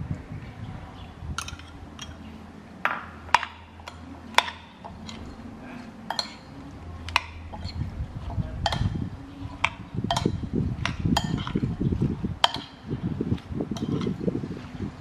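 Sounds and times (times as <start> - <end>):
spoon clinking against bowl: 6.1 - 7.8, 9.6 - 11.6, 12.4 - 12.8, 13.8 - 14.2.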